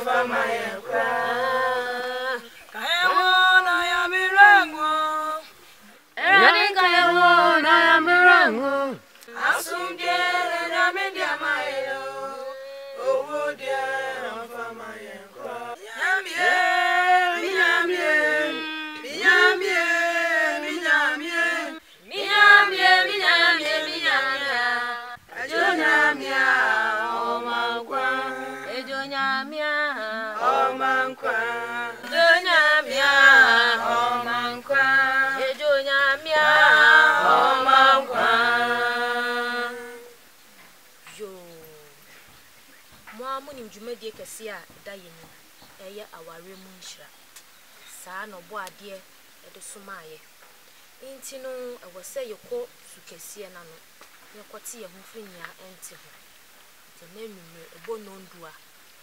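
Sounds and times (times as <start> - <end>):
group singing without instruments: 0.0 - 42.2.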